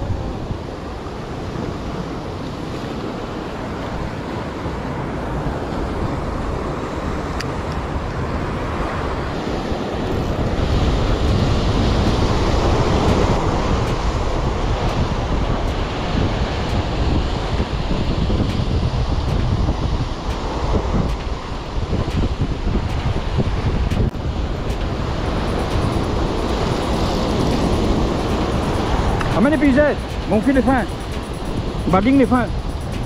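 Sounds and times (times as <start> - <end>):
wind buffeting microphone: 0.0 - 33.0
surf breaking over rocks: 24.3 - 33.0.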